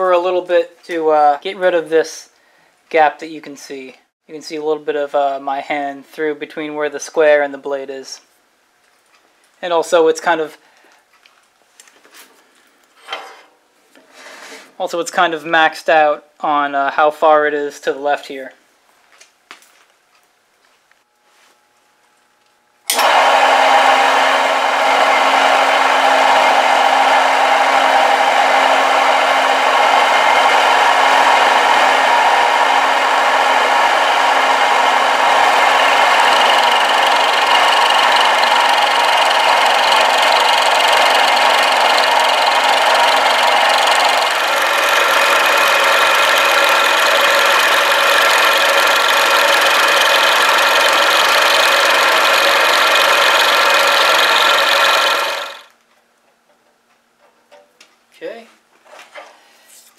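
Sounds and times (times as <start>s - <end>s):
milling machine cutting metal: 22.9s - 55.7s.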